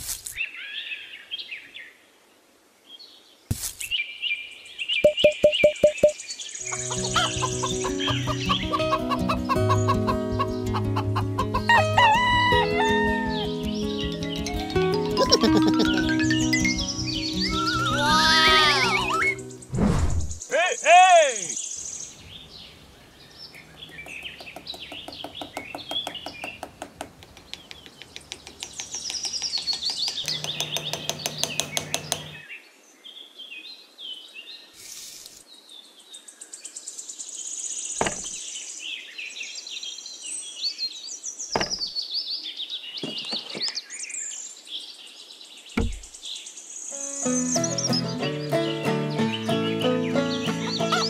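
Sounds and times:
birds chirping and singing: 3.9s - 19.7s, 20.4s - 34.7s, 35.6s - 51.0s
fast pulsing bird trill: 5.0s - 11.7s, 13.8s - 19.6s.

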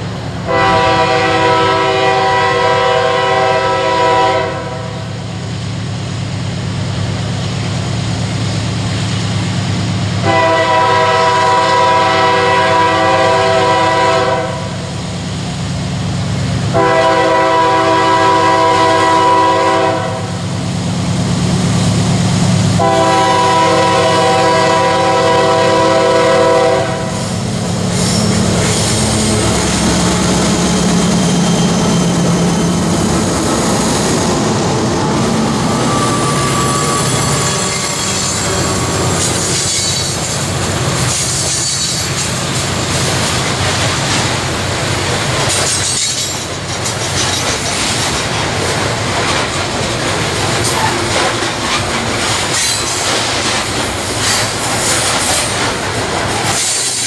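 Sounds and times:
locomotive horn blasts: 0.4s - 5.1s, 10.2s - 14.9s, 16.7s - 20.4s, 22.8s - 27.4s
locomotive engine rumble: 5.1s - 57.0s.

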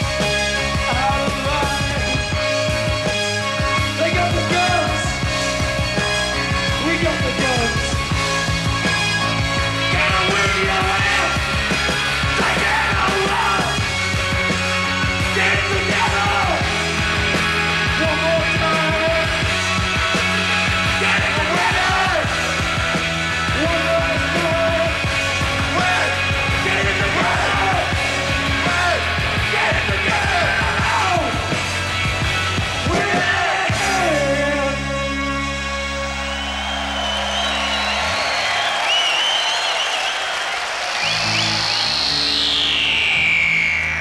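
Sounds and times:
rock band playing: 0.0s - 44.0s
man singing and shouting: 0.8s - 2.9s, 4.0s - 5.2s, 6.8s - 8.0s, 9.8s - 11.6s, 12.2s - 13.8s, 15.2s - 17.0s, 17.8s - 19.5s, 20.8s - 22.6s, 23.4s - 31.8s, 32.8s - 35.0s.

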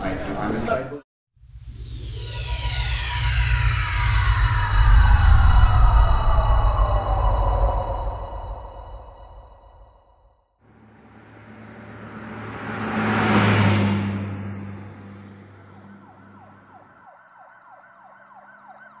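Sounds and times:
yelping emergency siren: 2.4s - 9.9s, 15.4s - 19.0s
vehicle passing by: 10.7s - 17.1s.

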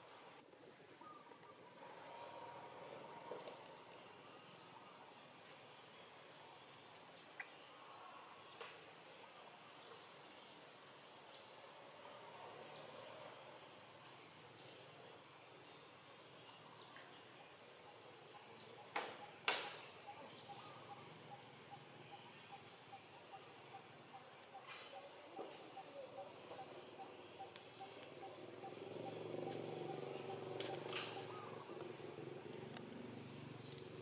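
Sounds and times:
birds chirping: 15.5s - 34.0s.

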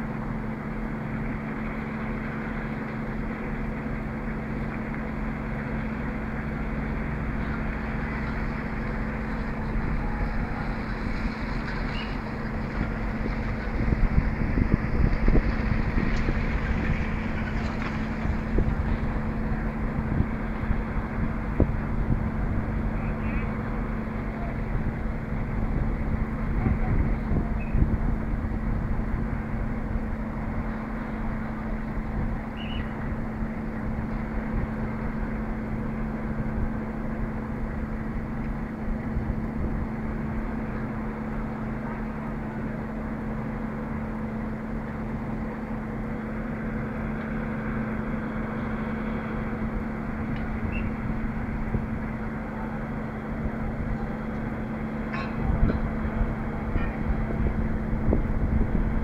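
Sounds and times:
crane diesel engine humming: 0.0s - 59.0s.

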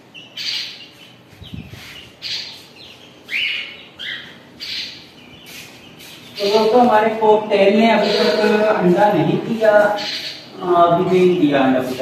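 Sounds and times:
parakeets screeching: 0.0s - 12.0s.

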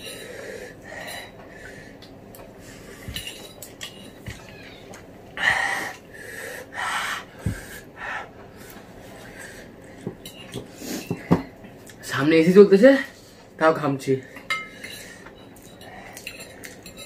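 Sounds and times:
person sucking hissing breaths: 5.4s - 9.6s.

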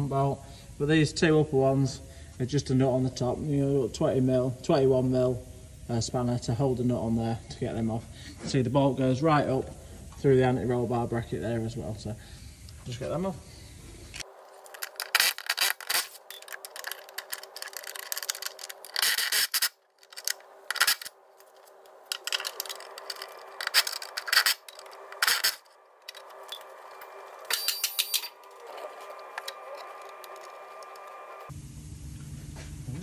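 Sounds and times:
faint steady hum: 0.0s - 33.0s
spanners clicking and scraping: 14.1s - 31.5s.

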